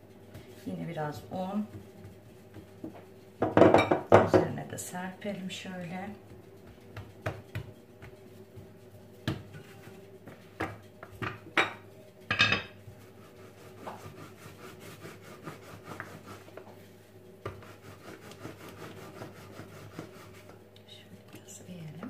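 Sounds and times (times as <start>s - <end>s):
rolling pin rolling dough: 0.2s - 11.7s, 12.8s - 20.7s
dough knocking on countertop: 1.6s - 4.6s, 6.3s - 12.8s.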